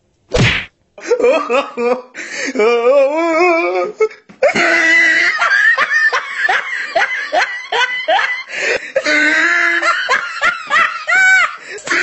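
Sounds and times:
person laughing hard: 1.0 - 2.9, 4.4 - 12.0.

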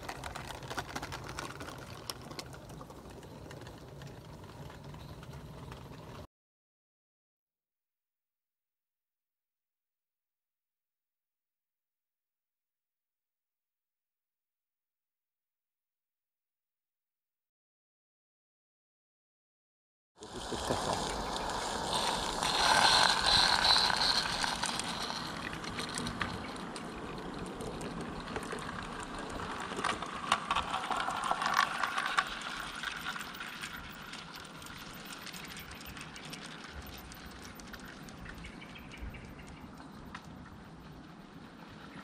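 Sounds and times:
wagons clicking over rail joints: 0.0 - 6.3, 20.2 - 41.2
model steam locomotive hissing: 20.2 - 25.4.

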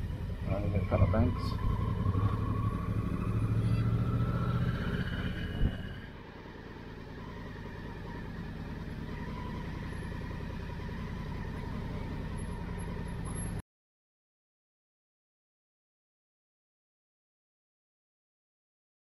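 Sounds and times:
motorcycle engine running: 0.0 - 13.6.

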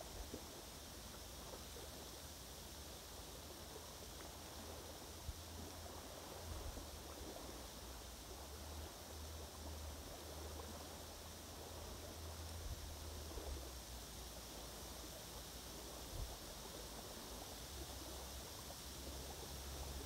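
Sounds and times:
steady hiss: 0.0 - 20.0
faint ticks: 11.9 - 13.7.

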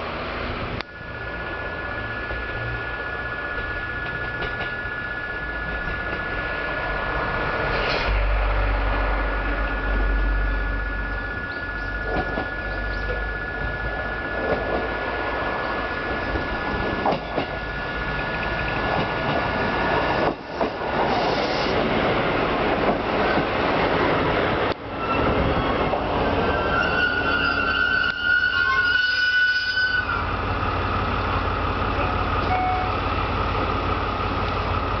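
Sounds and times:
railcar rumbling past: 0.0 - 35.0
high brake squeal: 25.0 - 25.8, 26.4 - 30.2.

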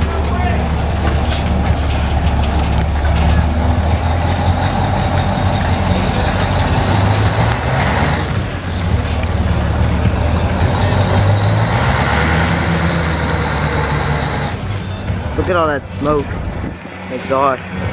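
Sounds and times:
fire engine running: 0.0 - 17.9.

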